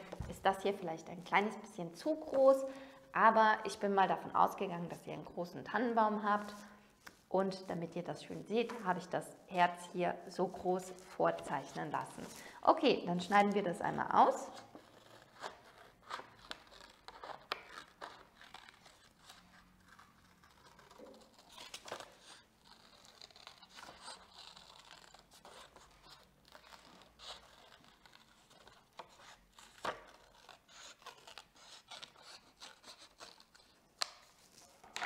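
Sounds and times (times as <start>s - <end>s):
scissors snipping paper: 14.4s - 35.0s.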